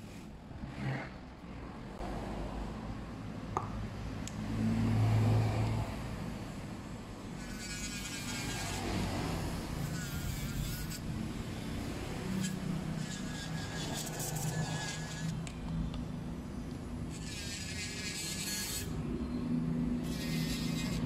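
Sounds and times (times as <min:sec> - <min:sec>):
electric nail drill grinding: 0:07.3 - 0:15.5, 0:17.0 - 0:19.0, 0:20.0 - 0:21.0.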